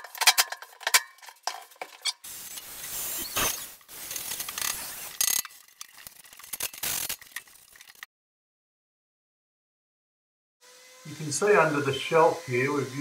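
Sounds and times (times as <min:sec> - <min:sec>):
hand tools clicking and rattling: 0:00.0 - 0:02.3, 0:04.1 - 0:08.0.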